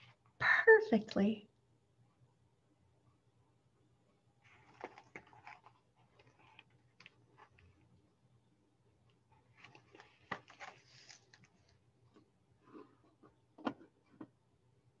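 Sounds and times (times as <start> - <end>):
book pages rustling: 4.4 - 8.0, 9.1 - 14.3
book tapping and knocking on surface: 13.6 - 14.4.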